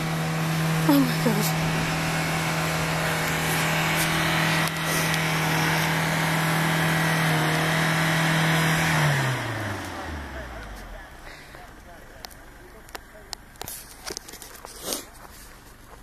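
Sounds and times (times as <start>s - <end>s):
truck engine revving: 0.0s - 14.0s.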